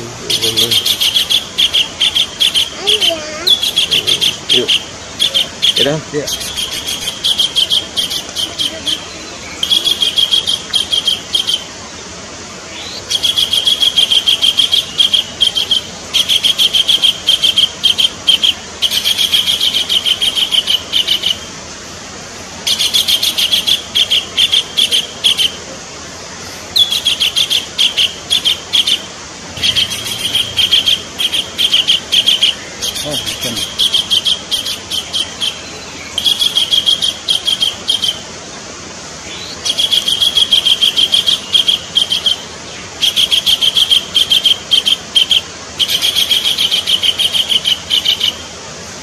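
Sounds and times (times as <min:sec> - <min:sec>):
kingfisher calling: 0:00.0 - 0:11.8, 0:12.6 - 0:21.6, 0:22.6 - 0:25.7, 0:26.4 - 0:38.6, 0:39.2 - 0:48.6.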